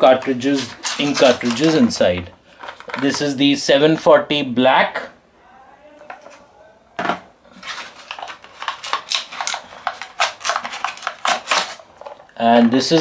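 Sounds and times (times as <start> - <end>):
cardboard and plastic crinkling: 0.0 - 3.4, 7.5 - 13.0.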